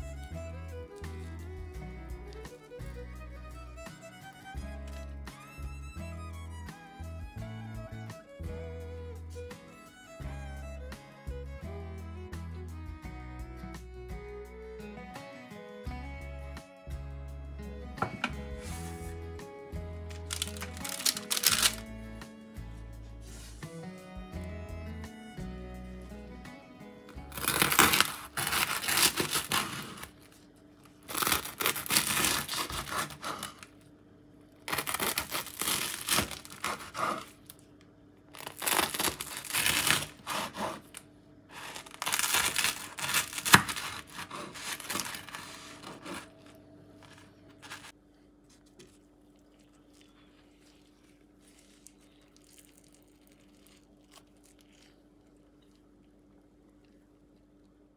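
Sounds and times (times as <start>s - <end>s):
knife sawing through crusty bread: 27.3s - 30.1s, 31.1s - 33.7s, 34.7s - 37.4s, 38.4s - 47.9s.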